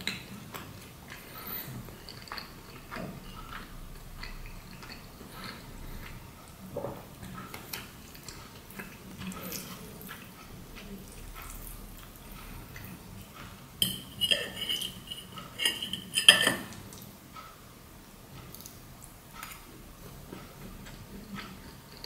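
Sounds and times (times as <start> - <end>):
fork scraping on ceramic plate: 13.8 - 16.8.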